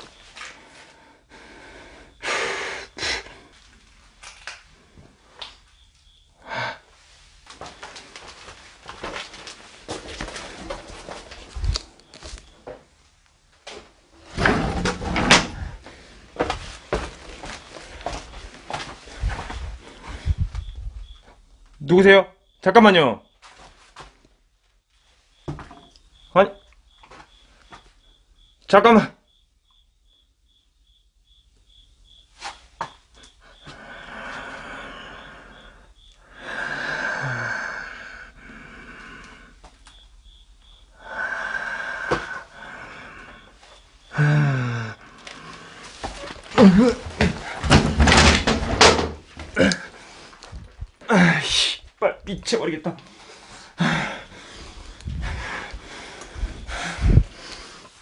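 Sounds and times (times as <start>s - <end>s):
man breathing heavily: 0.1s - 3.8s, 6.1s - 11.6s, 15.5s - 20.8s, 33.2s - 47.8s, 49.4s - 51.8s, 53.0s - 58.0s
wooden door scraping rattle: 14.2s - 15.8s, 46.1s - 49.6s.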